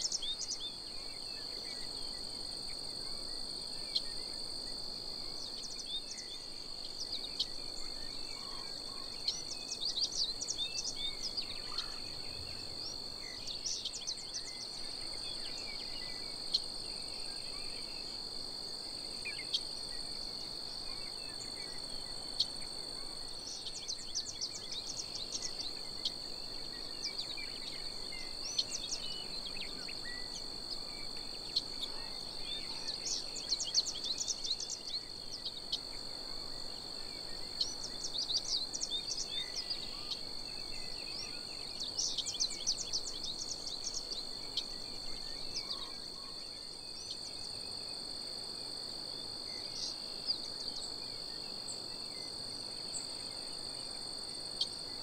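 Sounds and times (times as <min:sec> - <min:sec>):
bird song chirps: 0:00.0 - 0:55.0
insect chorus drone: 0:00.0 - 0:55.0.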